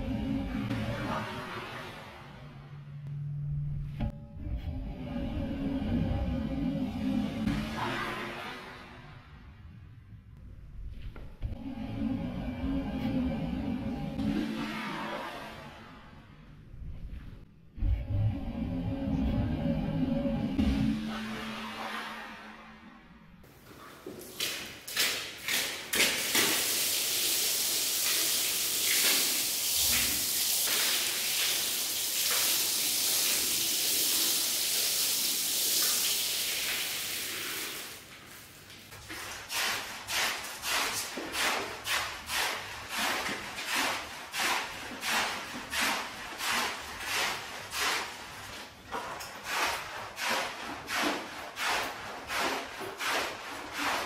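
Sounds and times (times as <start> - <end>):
spraying water hiss: 26.0 - 38.5
scraping strokes across wet rug: 37.5 - 54.0.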